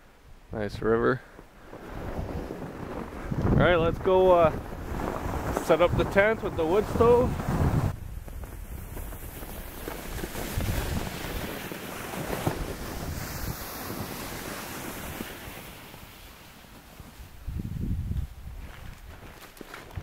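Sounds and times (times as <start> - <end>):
wind buffeting microphone: 1.6 - 15.6, 17.2 - 19.3
plastic sled hissing over snow: 1.6 - 17.5
crunching footsteps: 7.3 - 14.1, 18.5 - 20.0.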